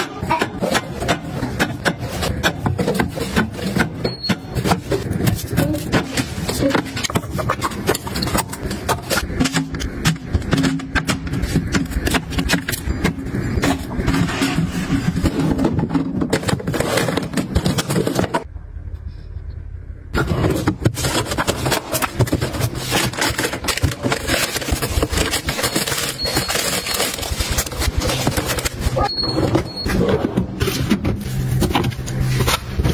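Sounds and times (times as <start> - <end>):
glass jars and containers clattering: 21.0 - 30.2.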